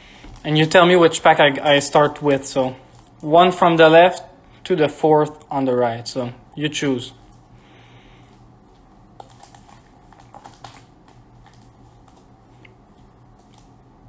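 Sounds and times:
foil card packs crinkling: 9.2 - 12.4.

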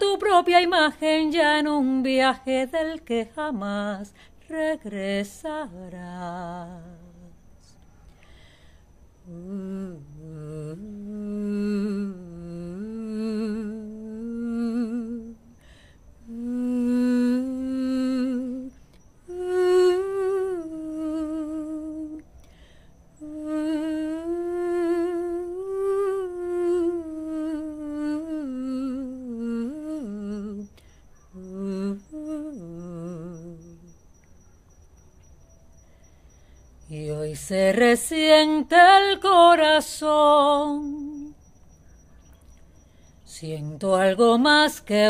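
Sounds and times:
woman humming a melody: 0.0 - 7.8, 9.2 - 15.6, 16.2 - 22.4, 23.2 - 34.0, 36.9 - 41.4, 43.3 - 45.0.

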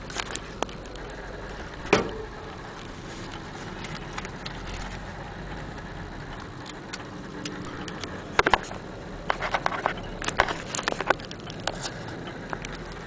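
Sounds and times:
sharp irregular clicks and knocks: 0.0 - 13.0.

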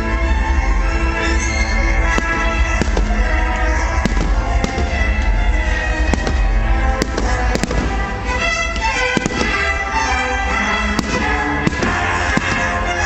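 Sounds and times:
music with long held notes: 0.0 - 13.0
firework shells bursting: 2.0 - 10.0, 10.9 - 13.0.

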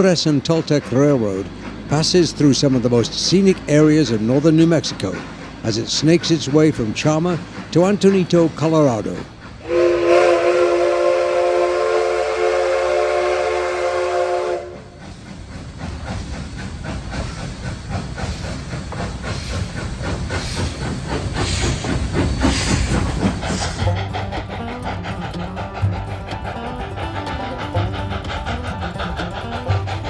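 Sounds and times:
hissing steam: 0.0 - 30.0
locomotive exhaust beats: 0.0 - 30.0
train wheel clatter: 0.0 - 30.0
steam locomotive chime whistle: 9.6 - 15.0.

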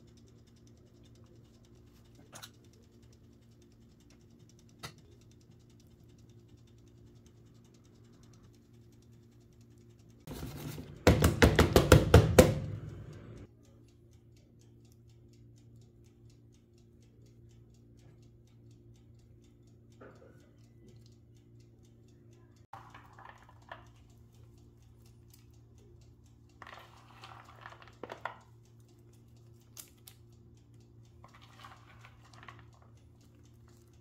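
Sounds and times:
faint steady hum: 12.0 - 34.0.

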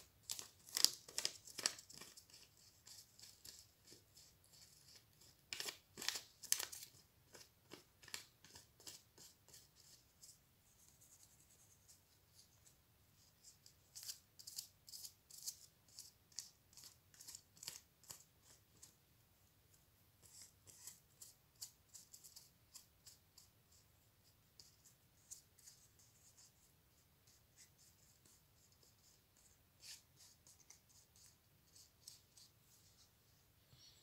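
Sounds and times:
paper crackling and rustling: 0.2 - 9.0.

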